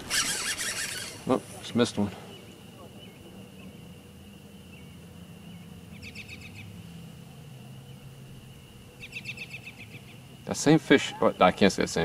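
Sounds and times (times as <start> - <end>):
short fast trill: 0.0 - 1.4
chorus of small calling animals: 0.0 - 6.8, 8.9 - 12.0.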